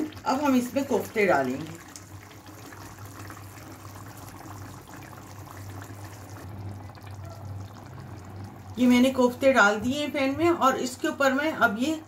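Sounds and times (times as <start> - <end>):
thick curry bubbling and spluttering: 0.0 - 9.5.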